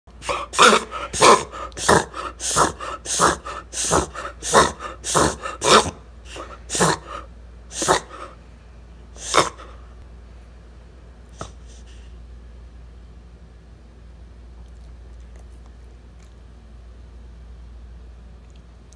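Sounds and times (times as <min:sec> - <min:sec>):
dog reverse sneezing: 0:00.2 - 0:08.4, 0:09.2 - 0:09.8.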